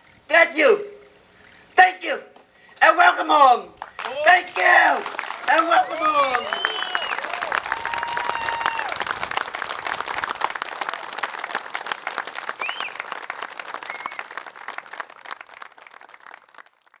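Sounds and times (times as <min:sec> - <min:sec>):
crowd applauding: 0:03.8 - 0:17.0
high-pitched calls from crowd: 0:04.0 - 0:09.1, 0:13.7 - 0:14.4.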